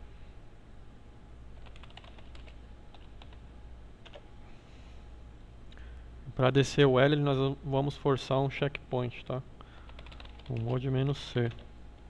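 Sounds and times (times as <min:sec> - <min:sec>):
faint low hum: 0:00.0 - 0:12.0
computer keyboard typing: 0:01.6 - 0:03.4, 0:04.0 - 0:04.2, 0:09.8 - 0:10.8, 0:11.4 - 0:11.7.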